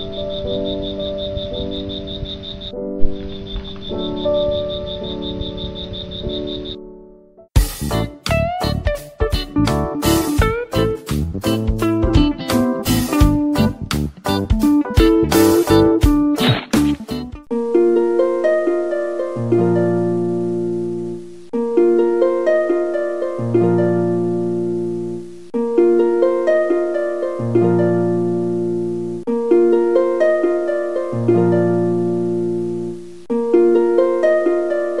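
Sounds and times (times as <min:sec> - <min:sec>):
low held bass notes: 0:07.9 - 0:17.4
harp-like plucked tune: 0:14.8 - 0:35.0.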